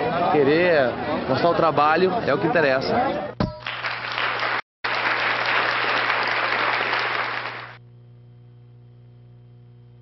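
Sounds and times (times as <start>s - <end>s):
audience applause: 3.6s - 7.8s.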